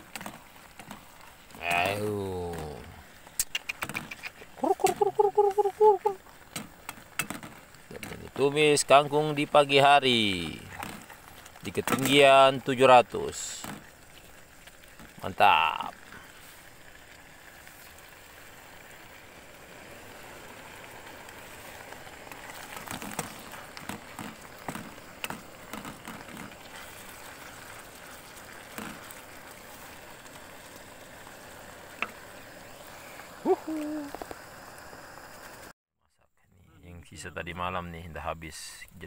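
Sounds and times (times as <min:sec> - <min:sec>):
vegetables sizzling in a pan: 0:00.4 - 0:03.4, 0:04.6 - 0:35.7.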